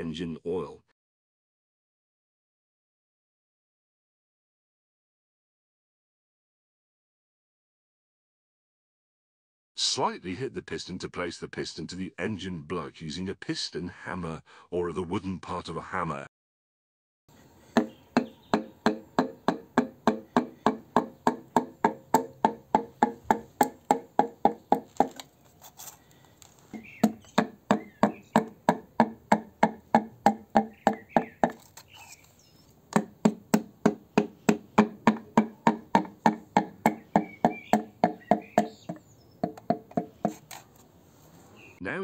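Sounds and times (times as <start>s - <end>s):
hammer handle knocking pistons: 17.8s - 25.2s, 26.8s - 31.7s.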